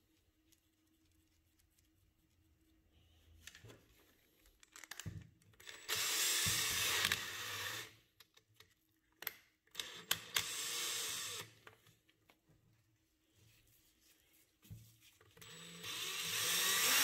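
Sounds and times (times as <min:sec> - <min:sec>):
cordless drill running: 0:05.7 - 0:08.0, 0:09.8 - 0:11.5, 0:15.4 - 0:17.0.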